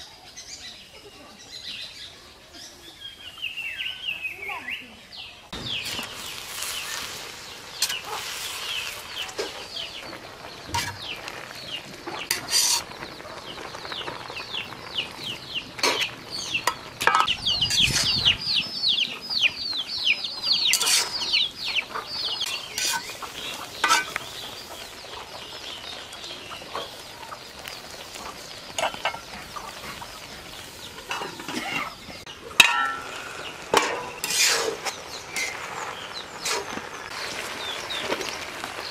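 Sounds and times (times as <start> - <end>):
birds chirping: 0.0 - 38.9
metal lid clanking on pot: 16.7 - 17.9, 32.6 - 34.6
metal spatula clinking in pot: 20.7 - 21.2, 32.6 - 33.2.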